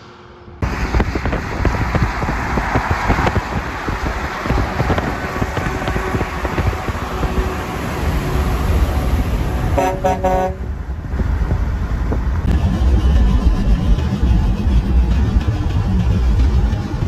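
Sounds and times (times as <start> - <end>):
road traffic rumble: 0.0 - 17.0
vehicle engine rumble: 0.0 - 17.0
horn toots: 5.0 - 10.7.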